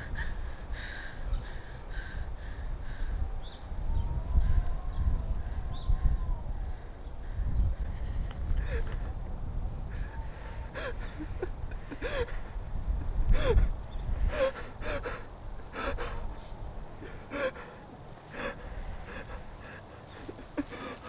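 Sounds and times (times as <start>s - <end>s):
young man sobbing: 9.9s - 16.3s.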